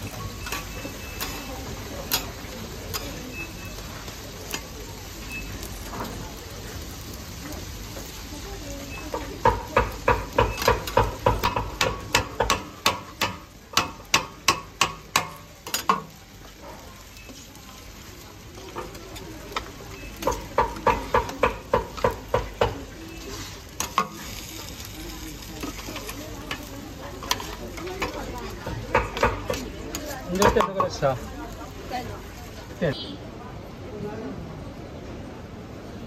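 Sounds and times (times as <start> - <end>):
low frying sizzle: 0.0 - 36.0
metal spatula tapping griddle: 0.1 - 3.4, 9.0 - 16.2, 18.6 - 24.9, 25.5 - 31.1.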